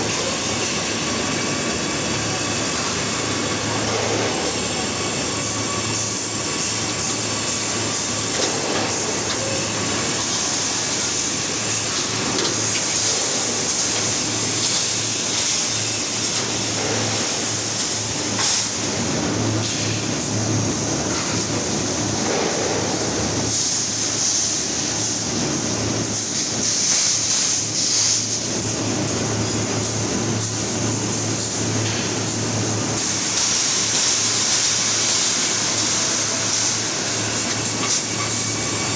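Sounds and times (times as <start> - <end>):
industrial machinery din: 0.0 - 26.6
hiss: 26.2 - 28.4, 33.0 - 38.9.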